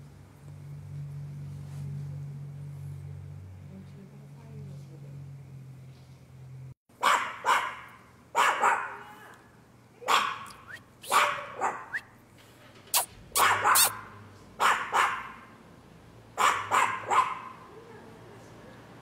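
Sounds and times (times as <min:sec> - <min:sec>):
dog barking: 0:07.0 - 0:09.2, 0:10.0 - 0:12.0, 0:13.0 - 0:15.5, 0:16.4 - 0:17.7.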